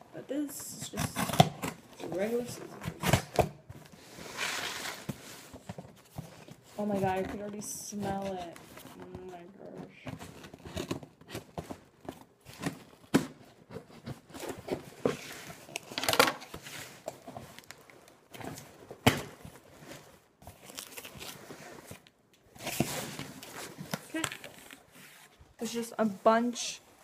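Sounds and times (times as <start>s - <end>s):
cardboard flaps scraping and crinkling: 0.8s - 26.4s
tape tearing: 0.9s - 1.8s.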